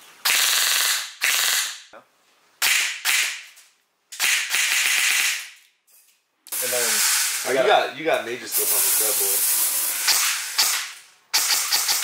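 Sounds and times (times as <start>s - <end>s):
airsoft gun full-auto bursts: 0.2s - 1.8s, 4.2s - 5.5s, 9.9s - 12.0s.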